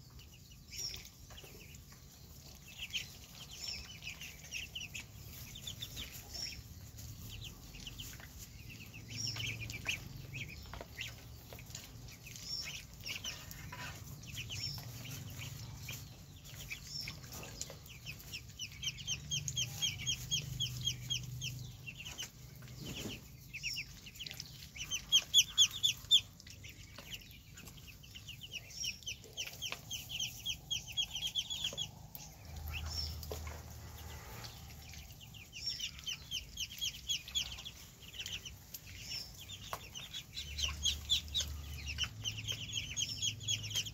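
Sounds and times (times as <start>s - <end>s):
ducklings peeping: 0.0s - 43.9s.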